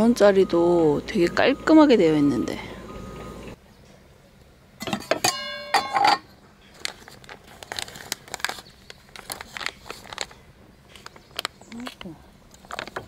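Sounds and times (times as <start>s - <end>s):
metal cookware clanging: 4.8s - 6.3s.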